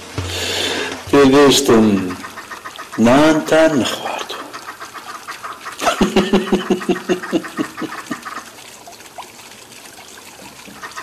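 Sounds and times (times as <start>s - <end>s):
faint hiss: 0.0s - 4.6s
man laughing heartily: 5.8s - 8.4s.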